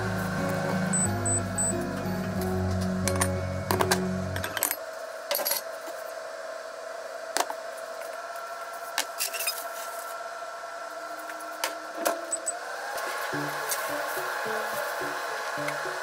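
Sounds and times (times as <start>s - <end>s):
steady hum: 0.0s - 5.3s.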